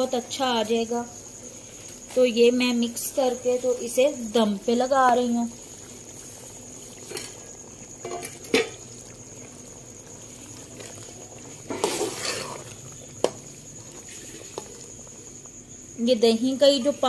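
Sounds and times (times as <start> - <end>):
curry simmering in a pot: 1.1 - 17.0
spoon scraping pot: 10.5 - 13.4.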